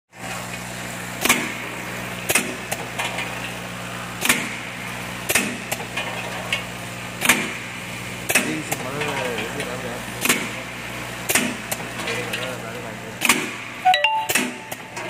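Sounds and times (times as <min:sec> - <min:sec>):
sharp machine clack: 0:13.3 - 0:15.0.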